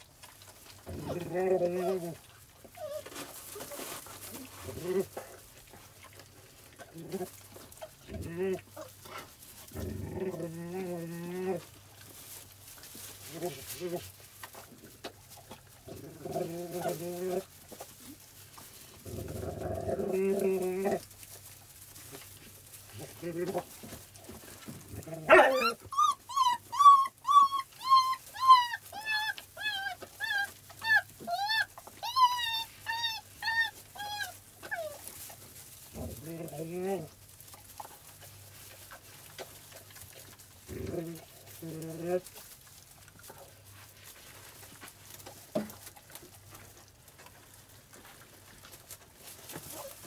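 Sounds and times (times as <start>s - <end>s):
puppy whining: 0.9s - 5.2s, 15.9s - 18.2s, 24.9s - 35.3s.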